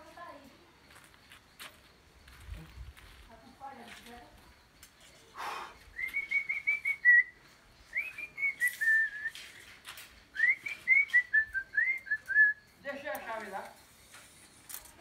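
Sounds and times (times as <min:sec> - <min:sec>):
man whistling a tune: 0:05.9 - 0:09.6, 0:10.3 - 0:12.7.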